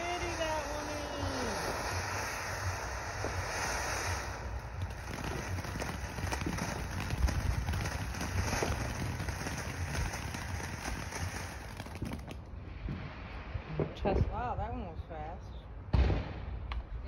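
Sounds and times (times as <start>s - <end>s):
firework fountain hissing and crackling: 0.0s - 12.8s.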